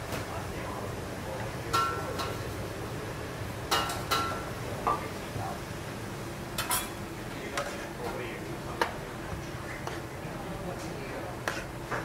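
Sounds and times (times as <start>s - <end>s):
kitchen background noise: 0.0s - 12.0s
kitchenware clinking: 6.6s - 7.0s.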